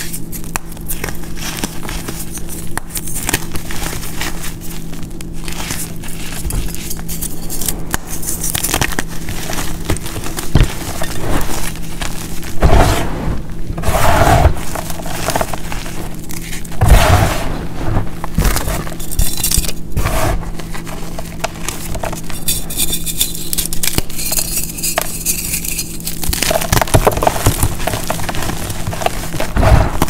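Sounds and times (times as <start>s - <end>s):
powder blocks crunching by hand: 0.0s - 30.0s
rustle of powder: 9.0s - 19.0s.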